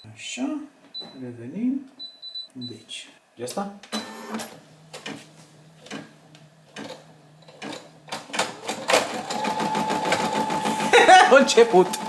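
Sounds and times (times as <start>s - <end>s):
embroidery machine whine: 4.0s - 12.0s.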